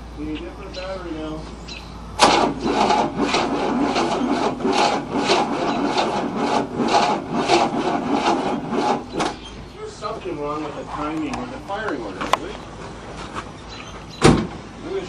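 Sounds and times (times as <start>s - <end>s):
starter cranking engine slowly: 2.2s - 9.4s.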